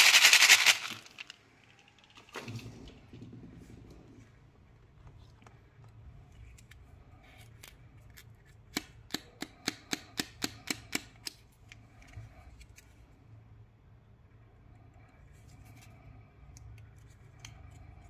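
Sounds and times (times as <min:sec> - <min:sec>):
plastic packets rustling: 0:00.0 - 0:01.4.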